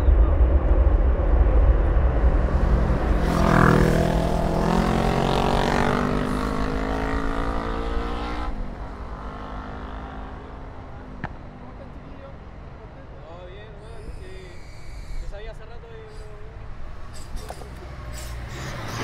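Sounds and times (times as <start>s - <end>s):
low rumble: 0.0s - 5.4s
jet engines roaring: 0.0s - 6.7s.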